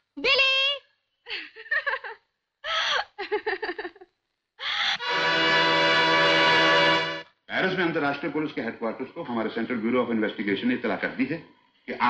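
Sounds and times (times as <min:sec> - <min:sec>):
breathy exclamations and laughs: 0:02.6 - 0:03.4, 0:04.6 - 0:05.1.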